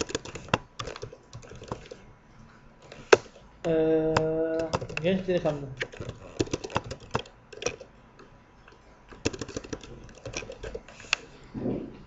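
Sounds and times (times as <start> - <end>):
keyboard typing: 0.0 - 11.4.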